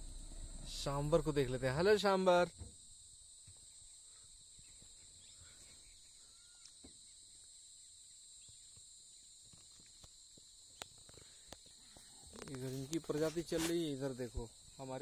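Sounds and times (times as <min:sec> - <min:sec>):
insects droning: 0:00.0 - 0:15.0
soft bird chirps: 0:03.5 - 0:09.3.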